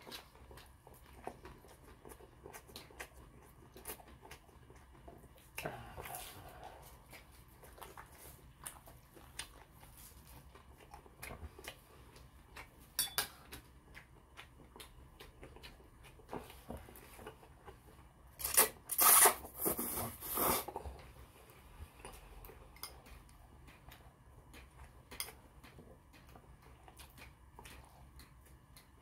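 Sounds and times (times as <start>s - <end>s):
man chewing: 0.0s - 29.0s
chopsticks clinking on ceramic bowls: 13.0s - 13.3s.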